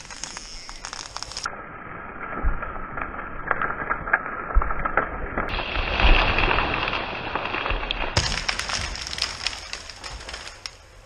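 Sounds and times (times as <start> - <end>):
wood and branches cracking: 0.0 - 1.5, 2.3 - 11.0
tree crashing down: 2.6 - 11.0.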